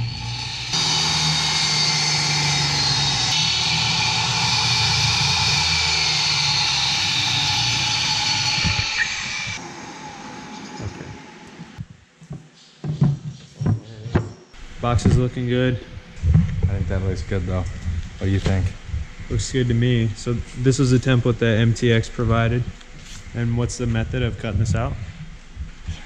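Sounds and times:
table saw cutting: 0:00.0 - 0:11.8.

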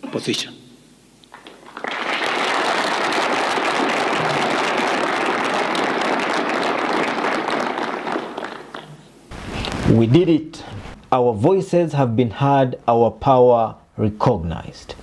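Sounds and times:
audience applauding: 0:01.3 - 0:09.2.

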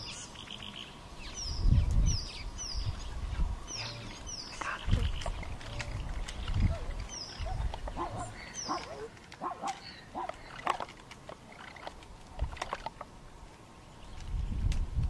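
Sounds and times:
animal cries and yelps: 0:06.6 - 0:10.4.

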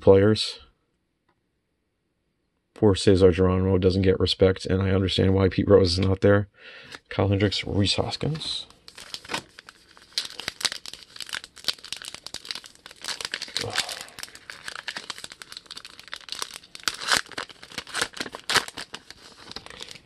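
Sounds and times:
wrapper tearing and crinkling: 0:08.7 - 0:20.0.

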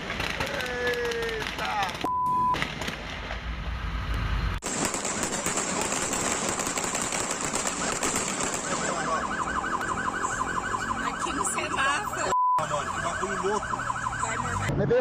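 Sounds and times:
crackling street noise: 0:00.0 - 0:15.0
police siren yelping: 0:07.6 - 0:14.8.

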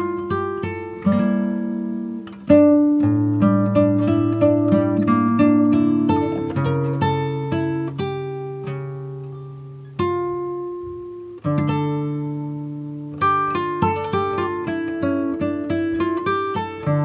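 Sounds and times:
plucked string instrument music: 0:00.0 - 0:17.0.

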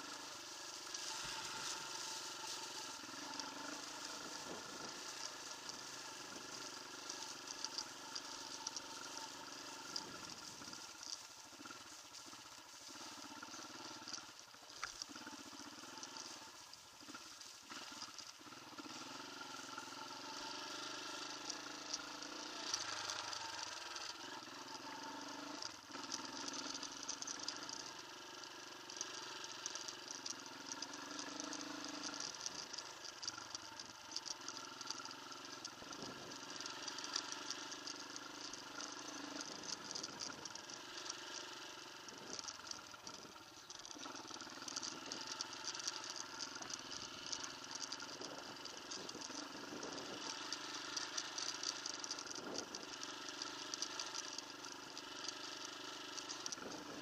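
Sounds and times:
motorcycle engine running: 0:00.0 - 0:57.0
wind and ground noise: 0:00.0 - 0:57.0.

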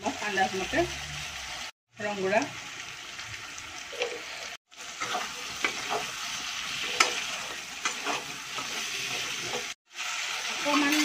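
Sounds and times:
chicken sizzling in oil: 0:00.0 - 0:11.0
metal spatula scraping pan: 0:04.0 - 0:09.8.

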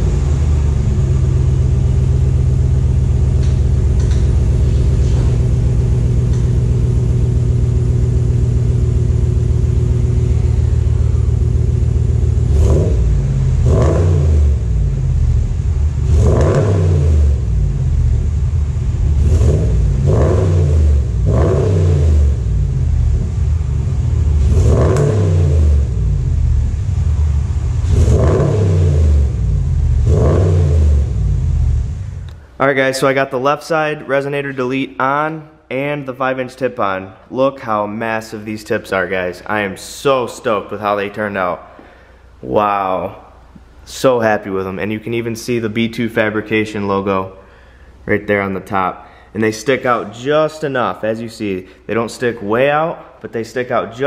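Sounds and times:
engine revving: 0:00.0 - 0:32.4
car engine idling: 0:00.0 - 0:32.6.

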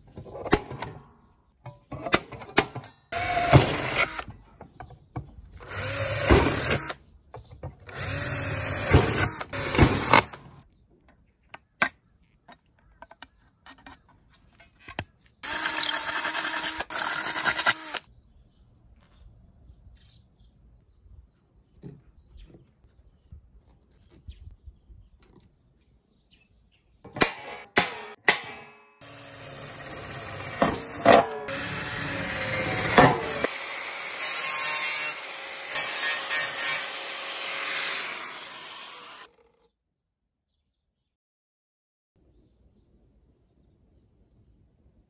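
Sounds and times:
drill grinding through metal: 0:03.2 - 0:04.3, 0:05.6 - 0:07.0, 0:07.9 - 0:10.5, 0:15.4 - 0:18.0, 0:29.0 - 0:39.6.

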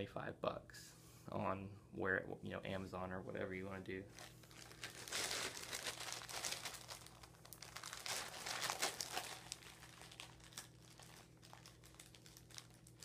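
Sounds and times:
backpack rustling and crinkling: 0:04.1 - 0:13.0.

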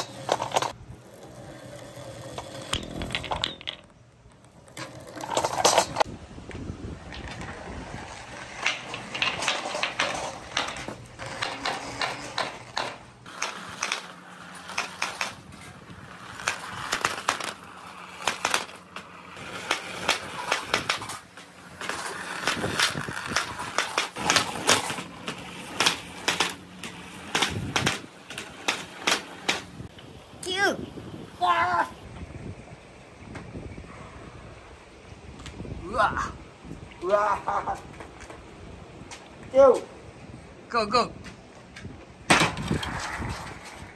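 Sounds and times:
balls clacking: 0:00.0 - 0:06.1, 0:07.1 - 0:15.5, 0:16.3 - 0:29.8
balls rolling in plastic pipe: 0:00.0 - 0:06.1, 0:07.0 - 0:29.8.

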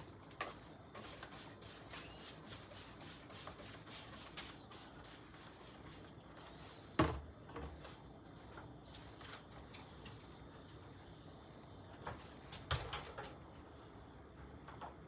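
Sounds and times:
scrubbing a kitchen surface: 0:07.8 - 0:11.7.

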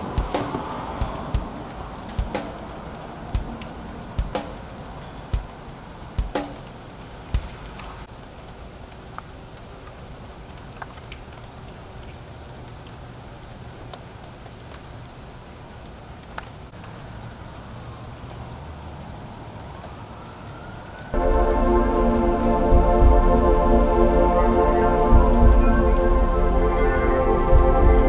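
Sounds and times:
heavy rain on pavement: 0:00.0 - 0:28.0
traffic rumble: 0:00.0 - 0:28.0
loud music: 0:21.2 - 0:28.0.

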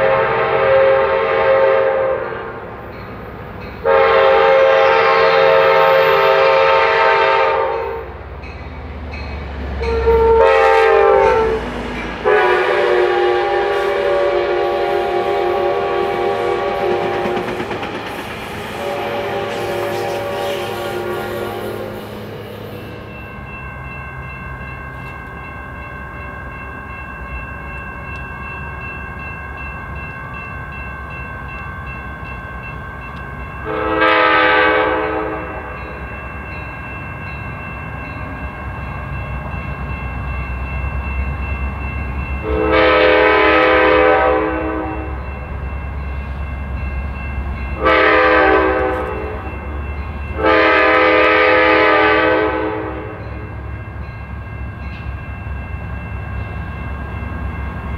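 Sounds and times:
locomotive air horn: 0:00.0 - 0:02.6, 0:03.8 - 0:08.2, 0:09.8 - 0:17.6, 0:18.7 - 0:22.6, 0:33.6 - 0:35.8, 0:42.4 - 0:45.2, 0:47.8 - 0:49.5, 0:50.4 - 0:53.2
train low rumble: 0:00.0 - 0:57.9.

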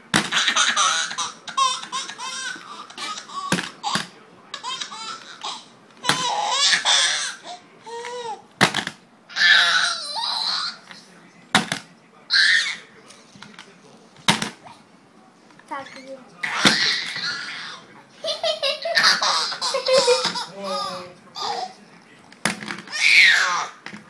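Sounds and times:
baby laughing: 0:00.3 - 0:08.4, 0:09.3 - 0:10.9, 0:16.4 - 0:21.8, 0:22.9 - 0:23.8.

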